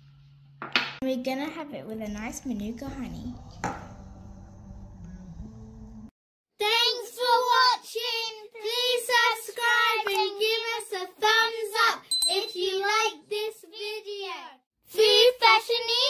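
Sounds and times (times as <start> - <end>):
child-like voice singing jingle: 12.0 - 13.1.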